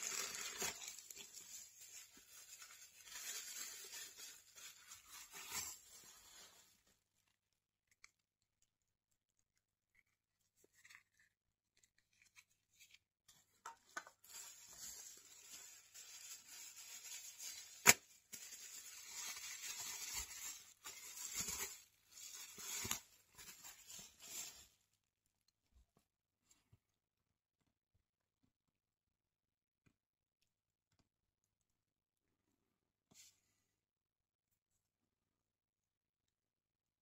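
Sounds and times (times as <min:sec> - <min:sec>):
plastic packaging crinkling: 0:00.0 - 0:06.8, 0:14.0 - 0:24.7.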